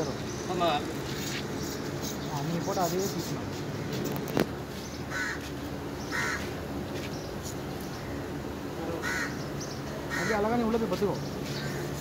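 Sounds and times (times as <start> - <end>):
crows cawing: 5.0 - 6.7, 8.0 - 12.0.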